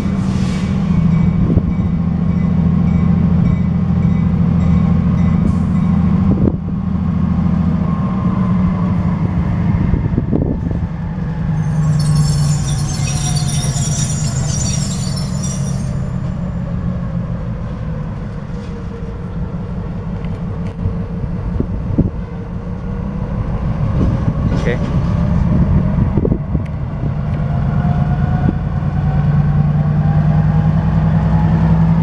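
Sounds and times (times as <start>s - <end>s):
railcars clanking: 0.0s - 6.6s, 10.6s - 20.7s
locomotive engine drone: 5.9s - 24.5s
wheels squealing on rail: 10.6s - 16.9s.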